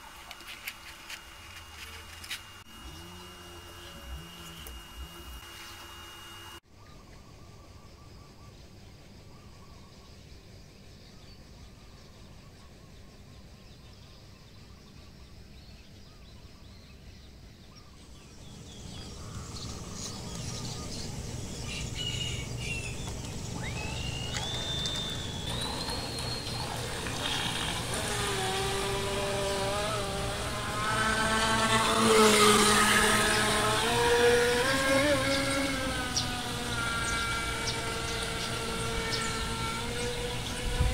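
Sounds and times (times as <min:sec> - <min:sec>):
electric motor whining: 0:00.0 - 0:06.6, 0:18.5 - 0:40.9.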